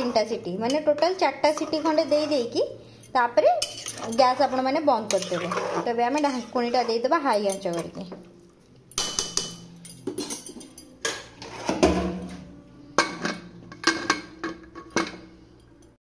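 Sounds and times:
metal ladle clanking on pressure cooker: 13.0s - 15.2s.

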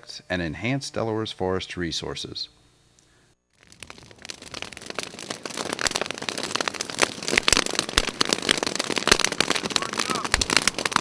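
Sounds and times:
fire crackling and popping: 3.4s - 11.0s.

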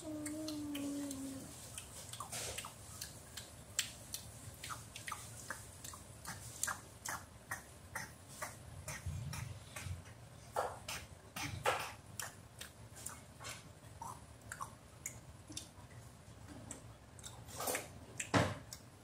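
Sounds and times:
chewing clicks and smacks: 0.1s - 10.2s, 10.9s - 16.0s, 16.6s - 19.0s.

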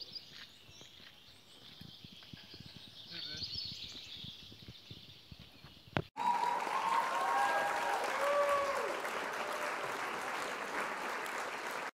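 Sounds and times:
gliding cheers: 6.2s - 11.9s
crowd applause: 6.2s - 12.0s.

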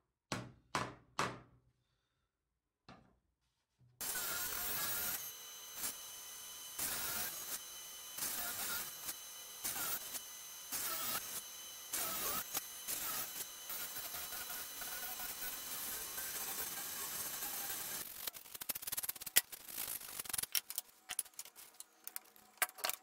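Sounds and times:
table saw motor whine: 4.0s - 18.3s
saw blade cutting wood: 4.0s - 23.0s.

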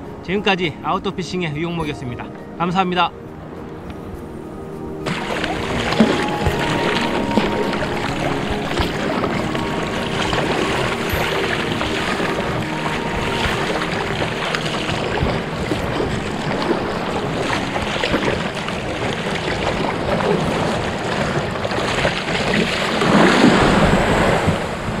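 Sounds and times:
wind noise on microphone: 0.0s - 25.0s
water lapping and splashing: 3.3s - 25.0s.

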